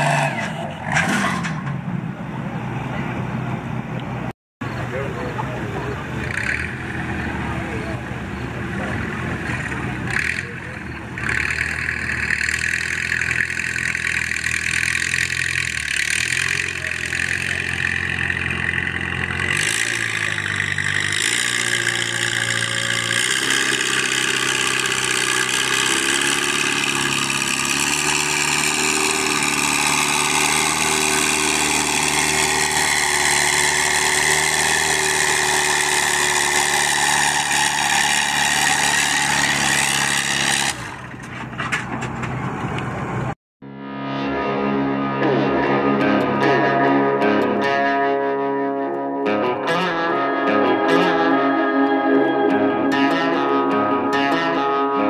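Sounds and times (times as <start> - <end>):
tractor engine running: 0.0 - 43.4.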